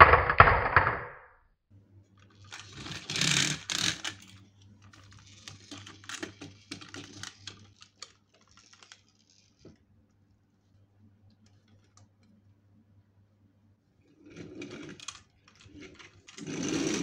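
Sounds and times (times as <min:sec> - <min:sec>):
marbles knocking: 0:00.0 - 0:01.3
toy truck plastic clicks: 0:02.3 - 0:09.6, 0:14.4 - 0:17.0.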